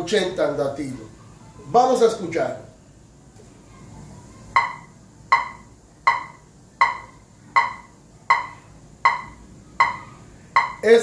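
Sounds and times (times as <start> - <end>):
metronome clicking: 4.6 - 11.0.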